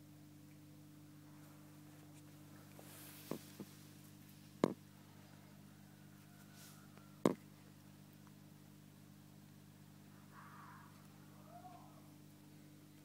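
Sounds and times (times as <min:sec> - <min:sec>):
aquarium equipment humming: 0:00.0 - 0:13.0.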